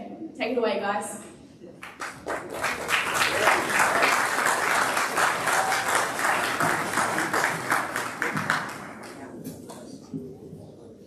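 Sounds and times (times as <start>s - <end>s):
audience applauding: 1.8s - 9.4s.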